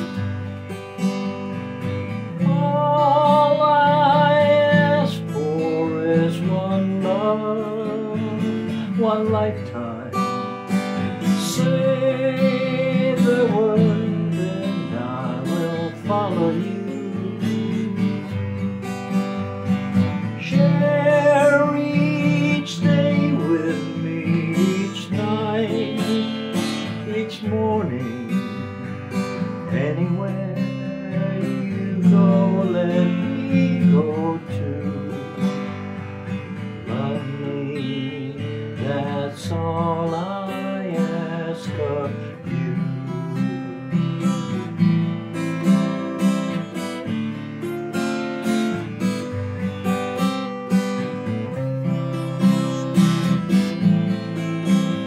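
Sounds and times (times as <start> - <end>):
acoustic guitar strummed: 0.0 - 55.0
man singing: 2.1 - 55.0.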